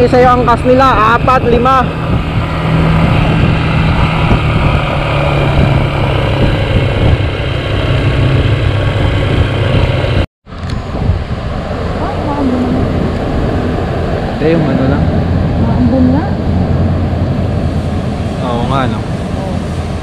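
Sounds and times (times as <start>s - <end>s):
motorcycle engine running: 0.0s - 20.0s
wind noise on microphone: 0.0s - 20.0s.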